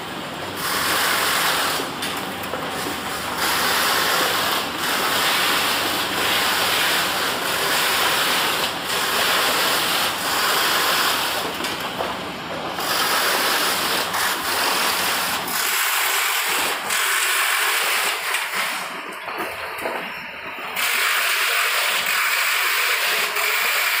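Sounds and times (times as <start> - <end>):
packaging machine hissing: 0.5 - 24.0.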